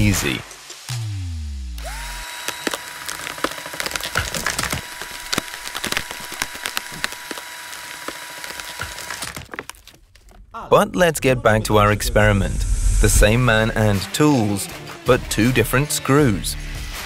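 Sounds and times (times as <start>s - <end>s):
high whine of screwdriver: 1.8s - 3.1s
wood crackling and splintering: 2.2s - 10.5s.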